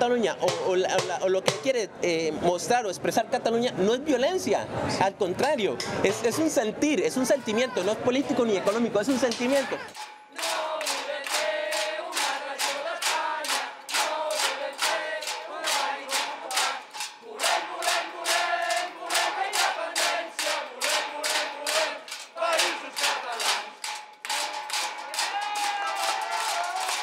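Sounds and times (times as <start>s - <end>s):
rhythmic hand-clapping: 8.7s - 27.0s
crowd chanting in unison: 9.6s - 27.0s.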